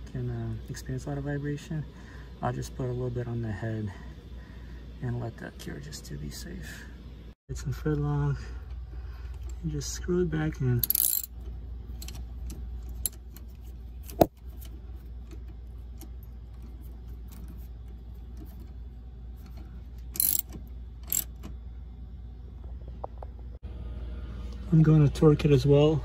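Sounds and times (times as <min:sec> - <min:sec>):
ratchet wrench clicking: 0:10.8 - 0:11.4, 0:20.1 - 0:21.4.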